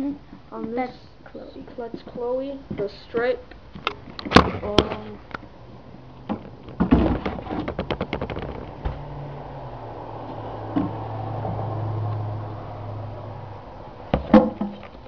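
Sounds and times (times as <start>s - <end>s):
handling knocks: 6.3s - 9.1s.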